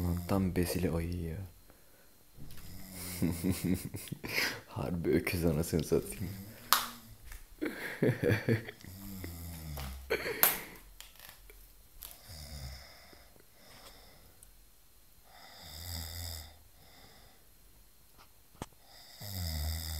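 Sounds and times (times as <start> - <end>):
man snoring: 0.0 - 0.6, 2.6 - 3.8, 6.1 - 7.2, 8.3 - 10.2, 12.2 - 13.3, 15.3 - 17.4, 18.8 - 19.9.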